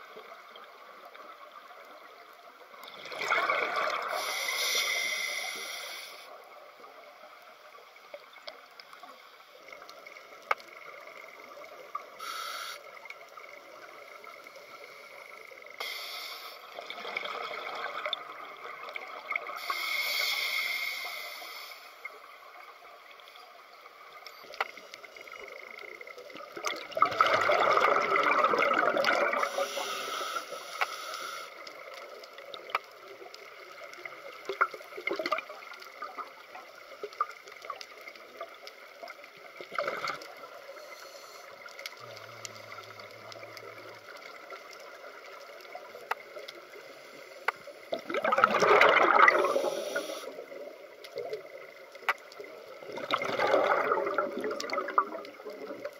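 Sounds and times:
underwater regulator bubbles: 2.8 - 5.2, 26.3 - 30.0, 39.6 - 40.5, 47.5 - 55.9
faint clicks: 3.9 - 27.4, 28.2 - 55.9.

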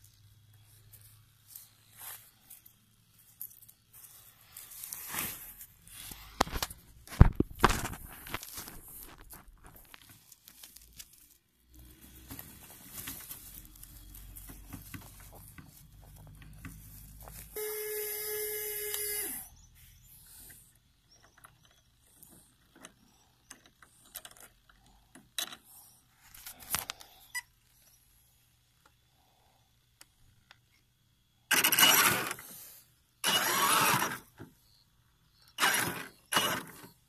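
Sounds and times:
electric winch motor whining: 17.6 - 19.6, 31.5 - 32.4, 33.2 - 34.3, 35.5 - 36.8.

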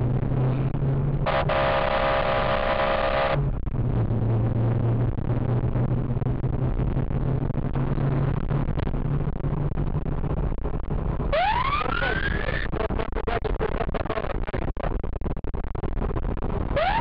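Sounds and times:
car engine and road noise: 0.0 - 17.0
police siren wailing: 1.3 - 3.4, 11.3 - 12.4, 16.8 - 17.0.

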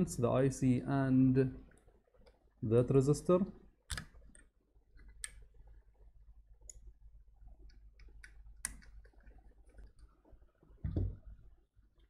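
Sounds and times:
clicks handling circuit board: 3.9 - 5.4.

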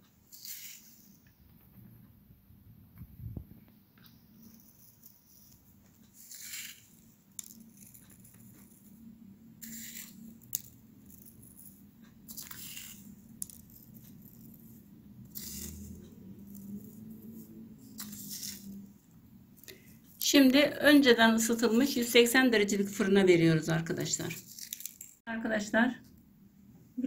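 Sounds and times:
seeds pattering on dough: 4.0 - 9.0, 9.6 - 18.8.

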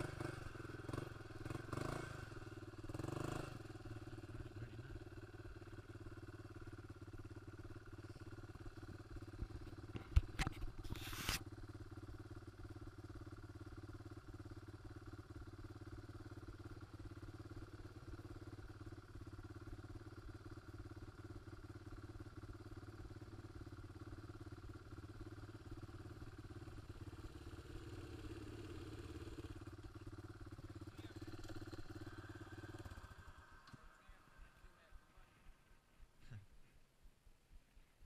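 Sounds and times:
atv engine idling: 0.0 - 38.0.

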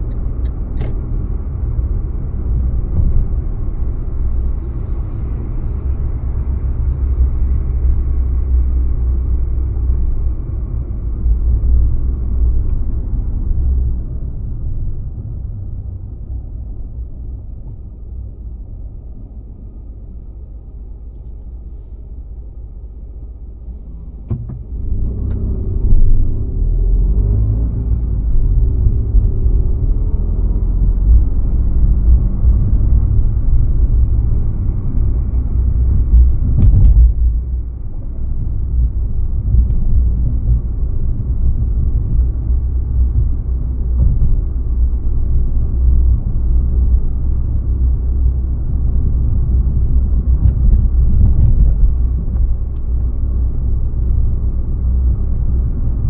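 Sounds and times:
car engine and road rumble: 0.0 - 56.0
short thump: 24.2 - 24.7, 36.4 - 37.3.

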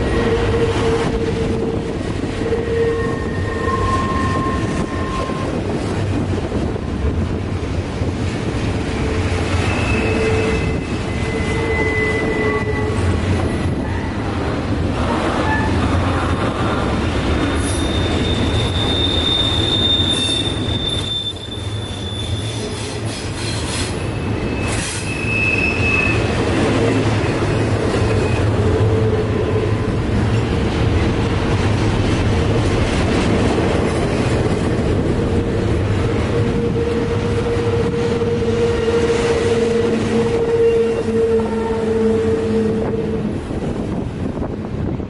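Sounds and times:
high-pitched wheel squeal: 0.0 - 5.6, 9.5 - 13.2, 17.5 - 27.0, 36.3 - 43.2
train wheels rumbling on rail: 0.0 - 45.0.

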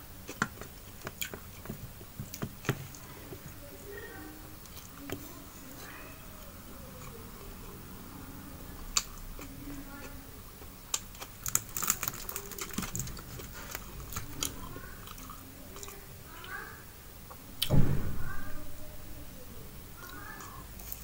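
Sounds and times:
chewing: 0.2 - 3.6, 4.6 - 17.7, 20.0 - 21.0
fingers crinkling foil: 10.9 - 15.3.

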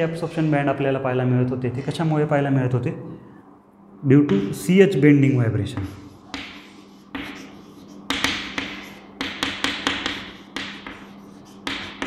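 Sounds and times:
chalk tapping and scratching on board: 5.7 - 12.0.

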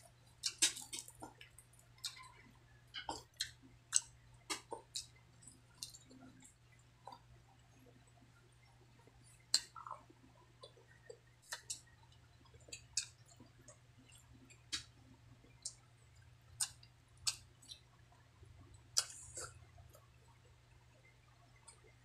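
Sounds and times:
low steady hum: 0.0 - 22.0
person chewing food: 0.1 - 7.3, 8.6 - 20.6
wet mouth clicks and smacks: 3.0 - 5.1, 16.6 - 17.8, 19.0 - 20.0.

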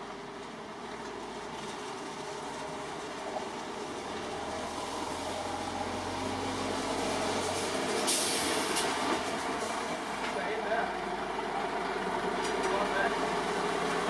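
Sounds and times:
air brake hiss: 8.0 - 8.9.

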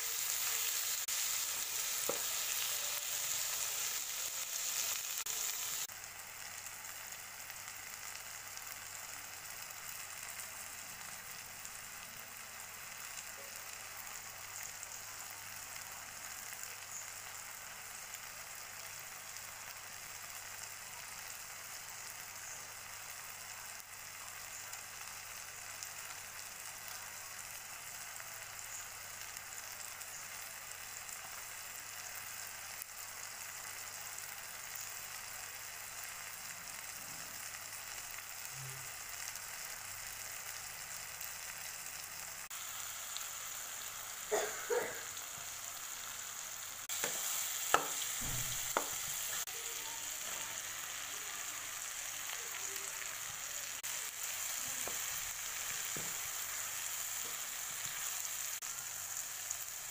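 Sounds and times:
vegetables sizzling in hot oil: 0.0 - 59.9.

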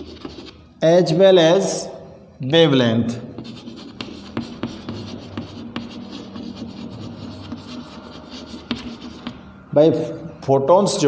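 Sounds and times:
chalk writing on blackboard: 0.0 - 0.7, 3.4 - 9.5.

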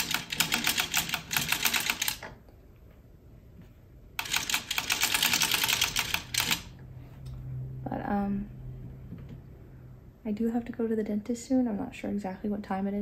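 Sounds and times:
knitting machine rattling clicks: 0.0 - 2.3, 4.2 - 6.7.

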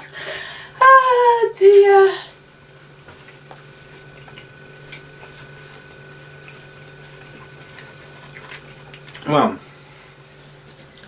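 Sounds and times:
low electrical hum: 0.0 - 11.0
person chewing: 6.3 - 10.0, 10.7 - 11.0.

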